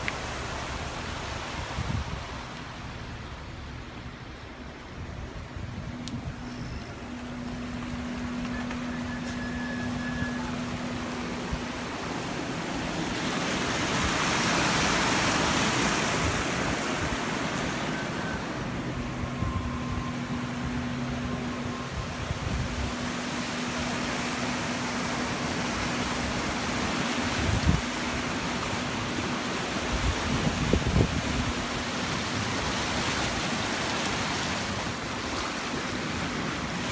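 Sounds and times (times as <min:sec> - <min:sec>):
floodwater rushing: 0:00.0 - 0:36.9.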